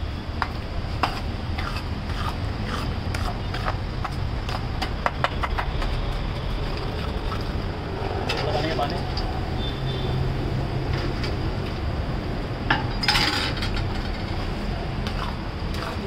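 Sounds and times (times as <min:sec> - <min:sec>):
steady low rumble: 0:00.0 - 0:09.6.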